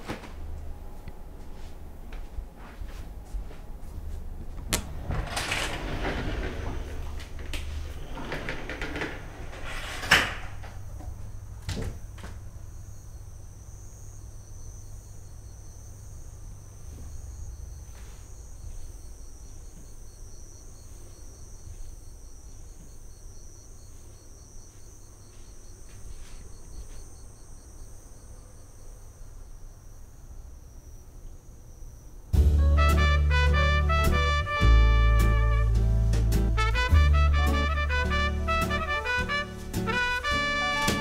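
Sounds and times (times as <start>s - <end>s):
insects chirping: 3.1s - 34.1s, 37.6s - 41.0s.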